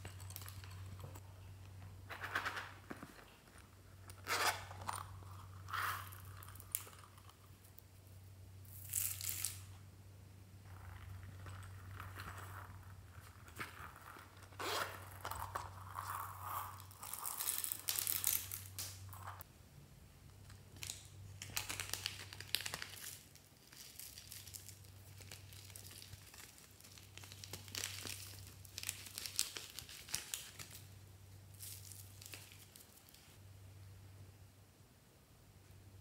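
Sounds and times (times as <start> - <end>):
fingers rustling through foam beads: 10.8 - 19.4.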